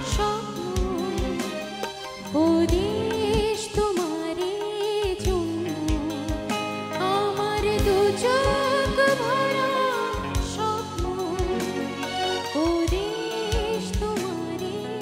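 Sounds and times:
woman singing: 0.0 - 15.0
electric bass: 5.2 - 15.0.

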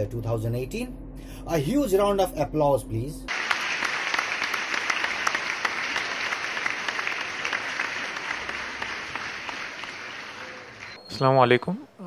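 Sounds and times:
audience applause: 3.3 - 11.0.

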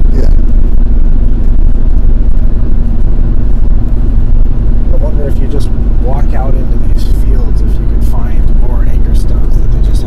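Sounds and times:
engine and tyre rumble: 0.0 - 10.0
faint steady hum: 0.0 - 10.0.

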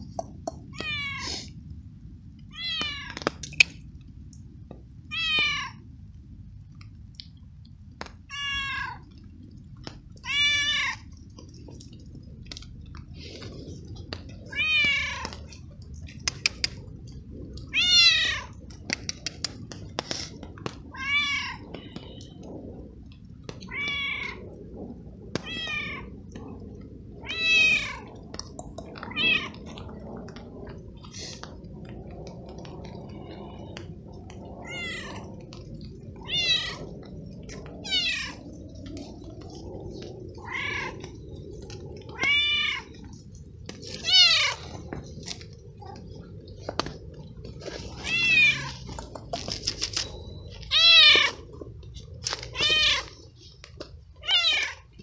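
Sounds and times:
cat meowing: 0.7 - 1.4, 8.3 - 9.2, 10.2 - 11.0, 14.5 - 15.4, 23.6 - 24.5, 34.6 - 35.2, 36.2 - 37.0, 48.0 - 48.8.

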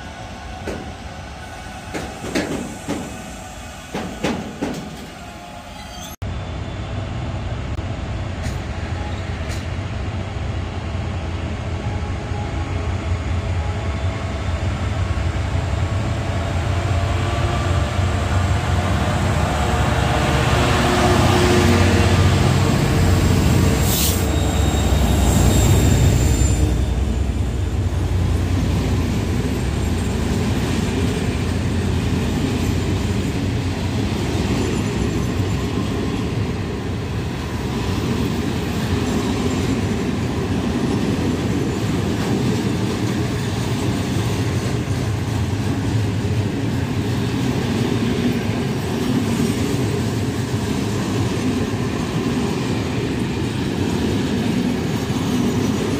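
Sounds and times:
train wheels on rails: 0.0 - 6.2, 7.7 - 10.4, 14.7 - 55.9
diesel locomotive engines: 0.0 - 55.9
wheel squeal: 5.6 - 6.2, 23.9 - 27.1.

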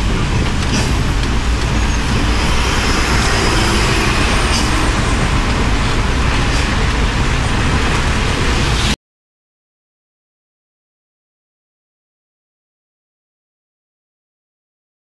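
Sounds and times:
truck engine rumble: 0.0 - 9.0.

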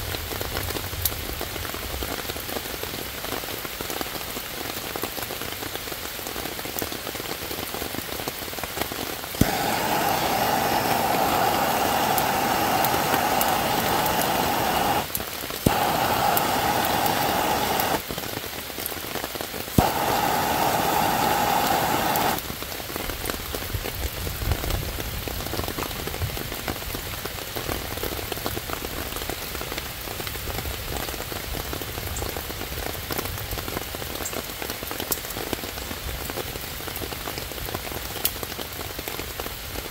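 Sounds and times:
rain on leaves: 0.0 - 39.9
torch ignition click: 9.4 - 18.0, 19.8 - 22.4
gas torch burning: 9.4 - 18.2, 19.7 - 22.4.

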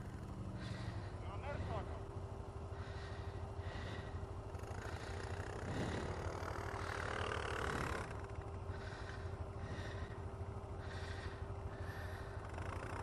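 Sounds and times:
atv engine running: 0.0 - 13.0.

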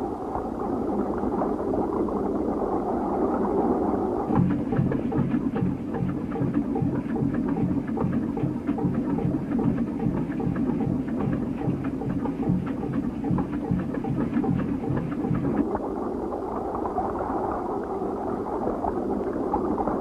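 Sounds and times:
boat engine chugging: 4.3 - 15.6.

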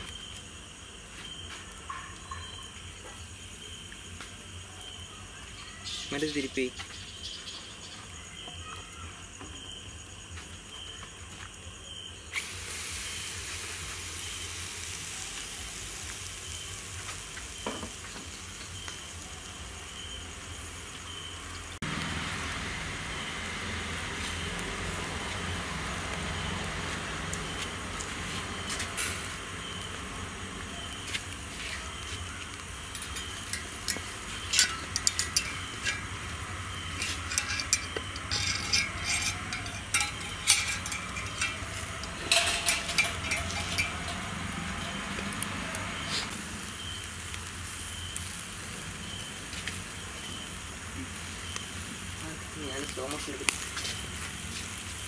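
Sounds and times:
chicken sizzling on a grill: 0.0 - 55.0.

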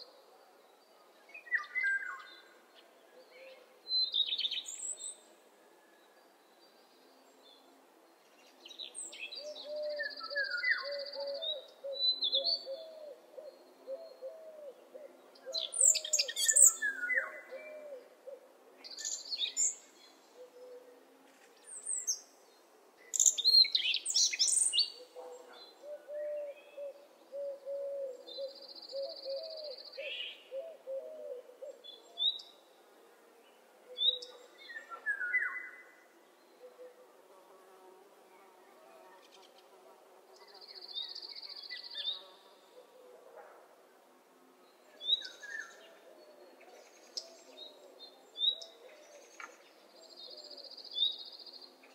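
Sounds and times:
birds chirping and trilling: 8.3 - 20.9.

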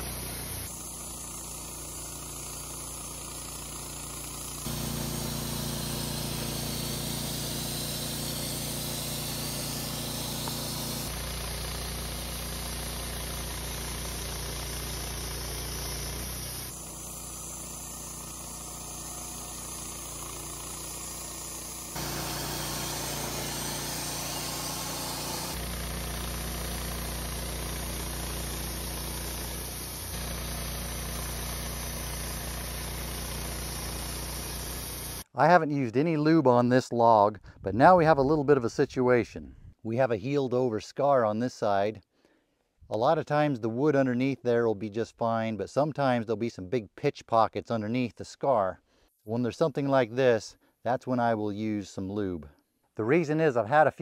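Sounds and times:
sawmill engine humming: 0.0 - 35.2
band blade sawing through log: 14.8 - 25.7.

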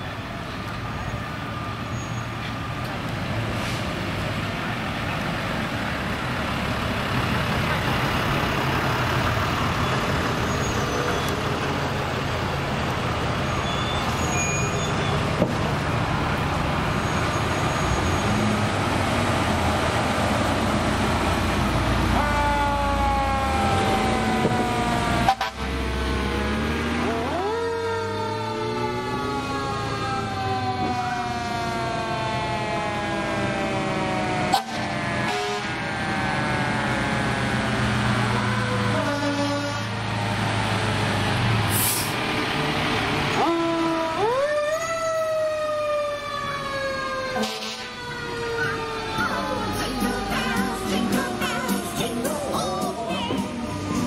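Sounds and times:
fire truck engines running: 0.0 - 54.0
siren falling in pitch: 22.2 - 25.6, 27.0 - 37.0, 43.4 - 52.2.

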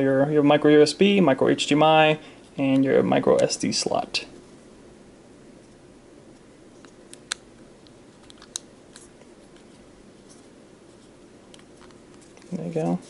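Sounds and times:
low room hiss: 0.0 - 13.0
plastic camera parts clicking: 8.2 - 9.1.

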